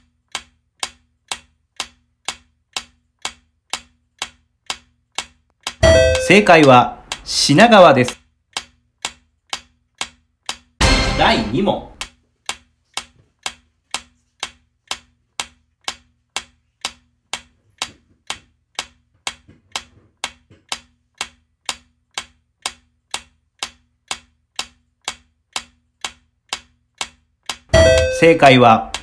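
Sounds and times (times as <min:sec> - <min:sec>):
clock ticking: 0:00.0 - 0:29.0.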